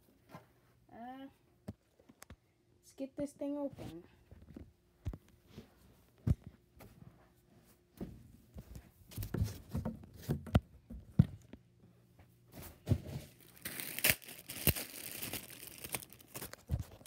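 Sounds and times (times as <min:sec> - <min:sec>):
plastic bag crinkling: 0:13.4 - 0:17.0.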